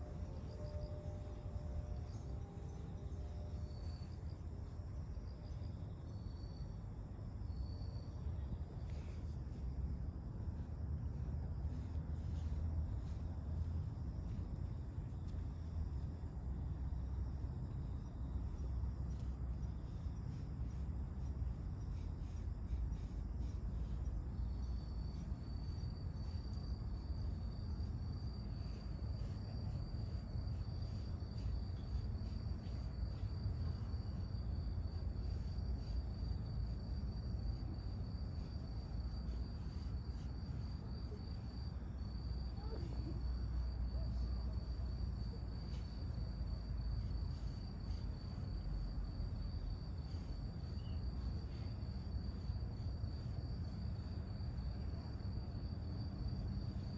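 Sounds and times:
cricket trilling: 0.0 - 56.9
low background rumble: 0.0 - 56.9.

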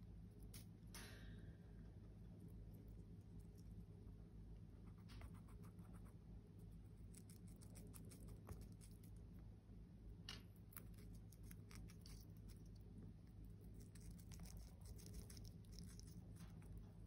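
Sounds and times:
low steady hum: 0.0 - 17.0
parrot beak crunching pea pod: 6.7 - 9.3, 10.4 - 17.0.

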